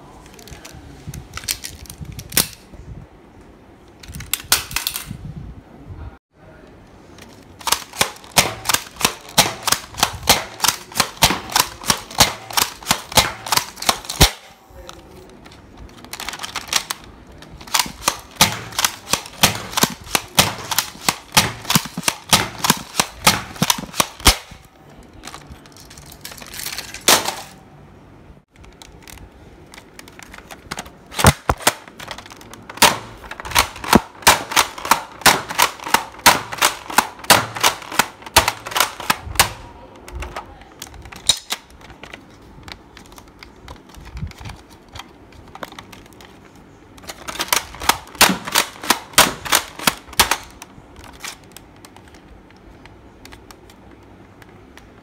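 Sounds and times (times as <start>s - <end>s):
toy blaster plastic clacks: 7.2s - 14.4s, 15.4s - 24.6s, 28.6s - 42.2s, 47.0s - 52.2s.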